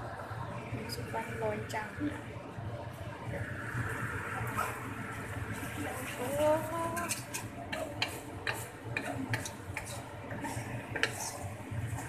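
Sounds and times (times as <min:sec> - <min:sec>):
spatula knocking and scraping wok: 0:06.1 - 0:12.0.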